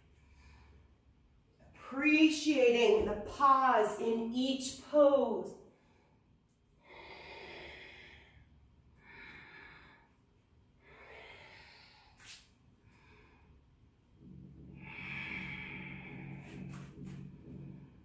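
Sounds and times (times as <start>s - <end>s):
low steady hum: 0.0s - 18.0s
woman breathing with effort: 5.7s - 18.0s.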